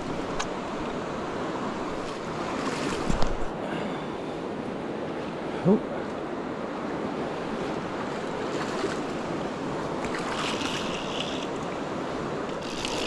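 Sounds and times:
river running over rocks: 0.0s - 6.8s, 7.4s - 13.0s.

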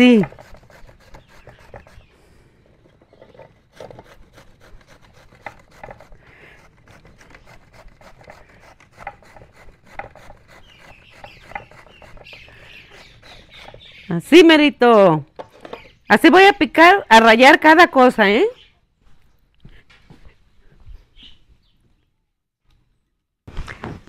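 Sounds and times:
vegetable grated on a grater: 0.0s - 2.1s, 3.7s - 13.9s.

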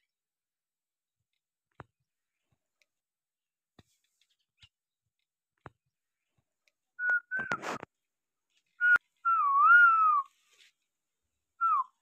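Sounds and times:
person whistling: 7.0s - 7.6s, 8.8s - 10.3s, 11.6s - 12.0s.

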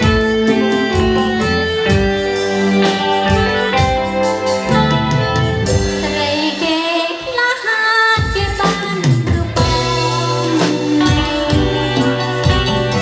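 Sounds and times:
bass: 0.0s - 7.4s, 8.2s - 13.0s
drums: 0.0s - 13.0s
electric guitar: 0.0s - 13.0s
woman singing with vibrato: 6.0s - 12.2s.

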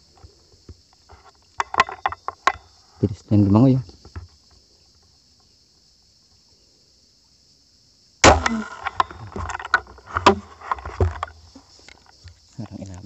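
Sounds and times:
crossbow sharp snap: 8.2s - 9.2s
rattling and clicking: 8.5s - 12.4s.

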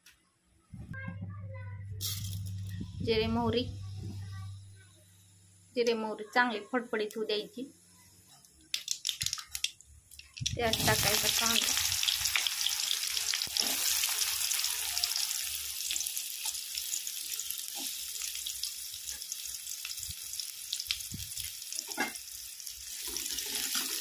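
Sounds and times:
onion sizzling in hot oil: 10.4s - 24.0s.

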